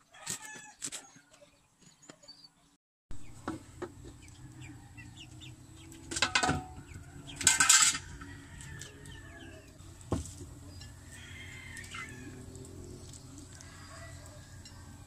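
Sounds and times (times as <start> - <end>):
chickens clucking: 3.2 - 15.0
loud chicken calls: 4.0 - 10.0, 10.6 - 15.0.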